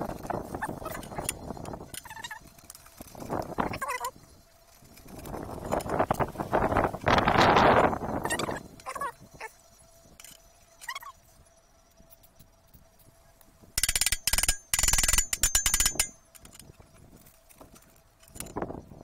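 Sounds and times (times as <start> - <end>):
pliers clicking and scraping metal: 13.8 - 18.8.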